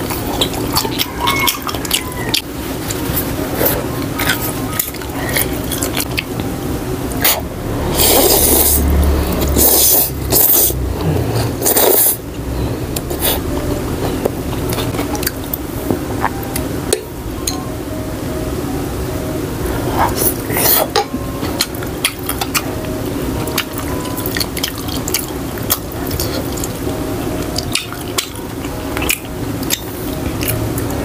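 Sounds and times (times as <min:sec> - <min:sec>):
wet chewing: 0:00.0 - 0:06.5, 0:23.4 - 0:31.0
loud slurping of noodles: 0:07.2 - 0:08.9.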